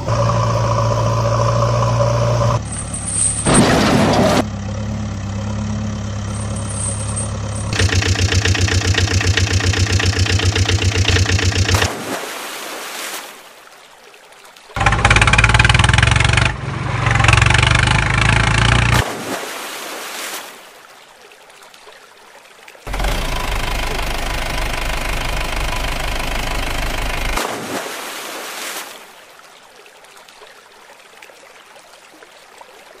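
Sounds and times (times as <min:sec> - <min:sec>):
vehicle engine running: 0:00.0 - 0:11.9, 0:14.8 - 0:19.0, 0:22.9 - 0:27.4.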